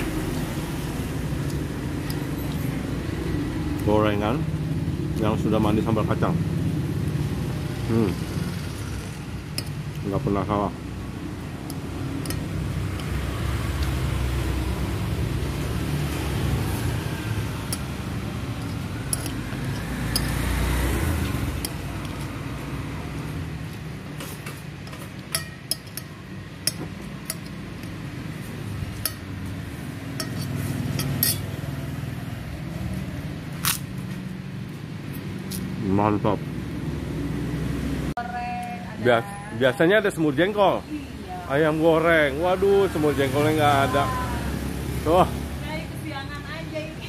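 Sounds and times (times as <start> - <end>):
cutlery scraping a glass plate: 30.2 - 31.5.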